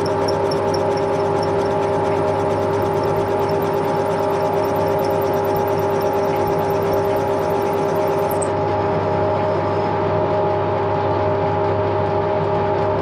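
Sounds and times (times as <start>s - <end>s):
faint even ticks: 0.0s - 8.5s.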